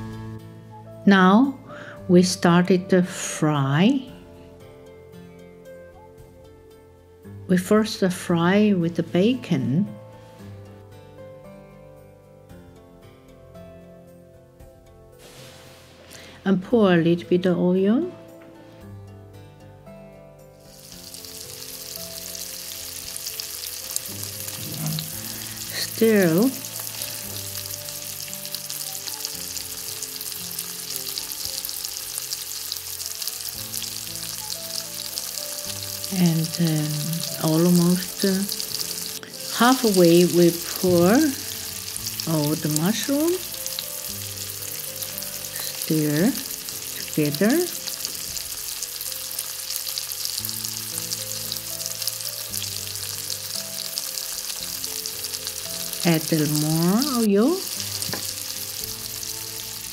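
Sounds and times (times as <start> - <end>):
bacon sizzling in oil: 15.2 - 16.4, 20.6 - 59.9.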